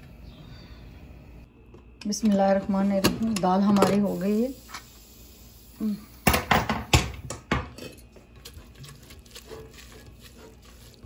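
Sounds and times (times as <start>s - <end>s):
stirring thick lentils: 8.4s - 11.0s.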